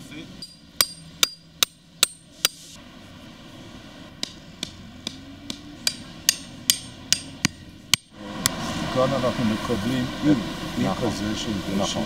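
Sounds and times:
hammer striking a stake: 0.4 - 2.6, 4.2 - 8.6.

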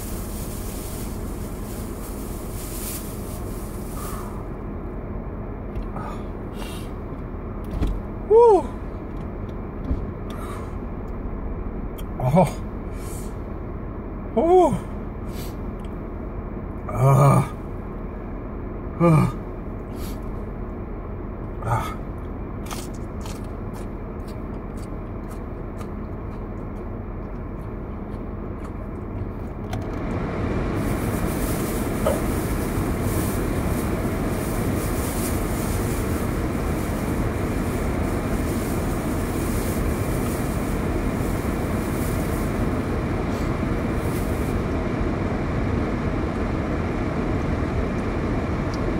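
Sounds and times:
steady rushing noise: 0.0 - 4.9, 30.0 - 48.6
soft breath: 0.3 - 4.6, 5.9 - 7.0, 10.3 - 10.9
man gasping in pain: 21.6 - 22.0.

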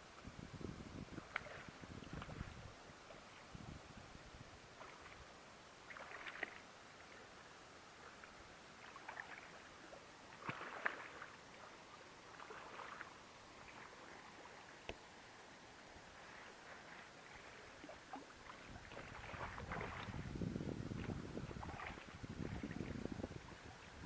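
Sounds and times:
fish splashing in water: 5.9 - 6.6, 8.8 - 9.6, 10.3 - 11.3, 17.2 - 20.2, 21.6 - 22.8.

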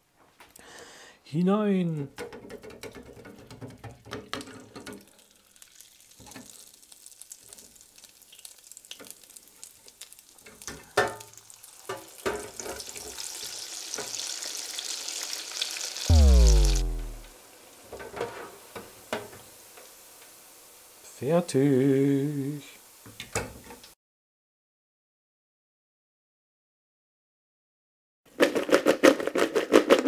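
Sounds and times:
fries sizzling in hot oil: 2.3 - 24.0.

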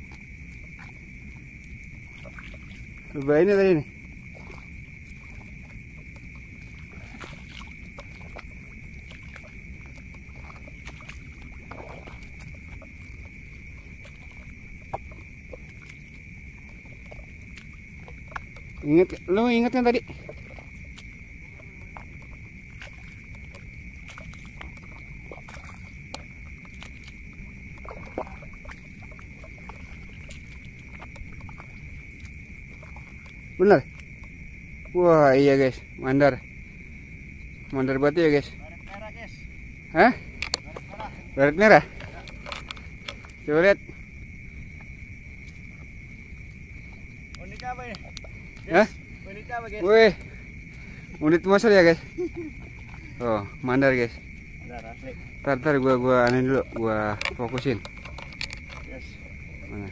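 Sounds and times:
night insects chorus: 0.0 - 59.9.

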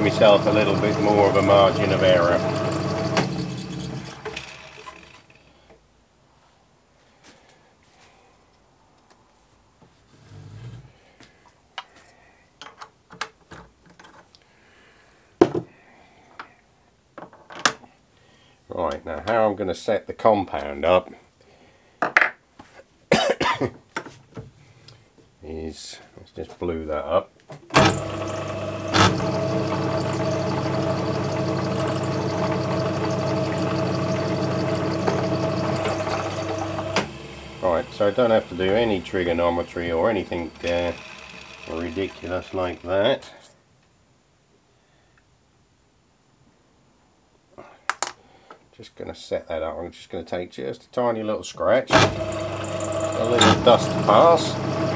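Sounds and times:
lathe motor and gear hum: 0.0 - 5.3, 27.8 - 42.9, 51.9 - 54.9.

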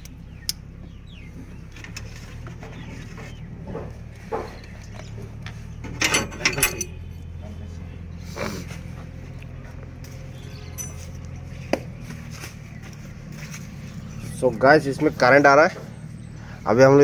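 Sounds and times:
low mechanical hum: 0.0 - 17.0
sharp clattering: 5.8 - 7.1.

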